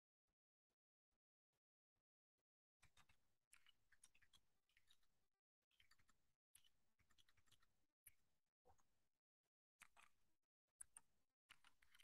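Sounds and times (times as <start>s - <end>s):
faint keyboard typing: 10.8s - 12.0s.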